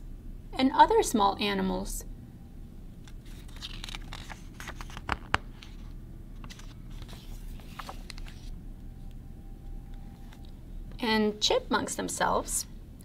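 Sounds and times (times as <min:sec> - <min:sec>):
book page turning: 0:03.0 - 0:08.6.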